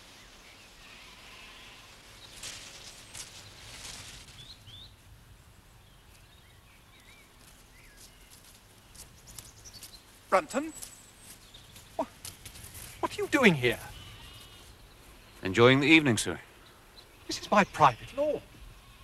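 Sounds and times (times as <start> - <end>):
small birds chirping: 0.0 - 19.0
soft rustling: 1.6 - 4.8, 7.0 - 15.5.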